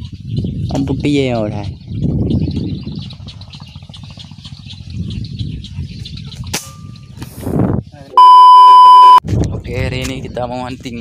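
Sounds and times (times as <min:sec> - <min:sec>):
loud electronic beep: 0:08.2 - 0:09.2.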